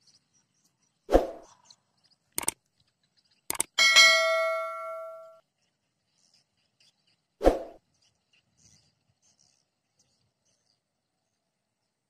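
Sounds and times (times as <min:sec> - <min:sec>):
mouse click: 0:02.4 - 0:02.6, 0:03.5 - 0:03.8
bell ding: 0:03.8 - 0:05.4.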